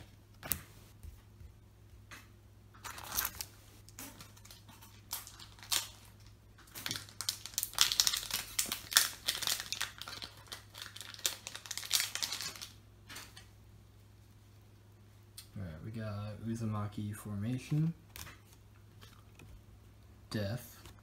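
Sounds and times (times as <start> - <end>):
foil wrapper tearing and crinkling: 2.8 - 12.8.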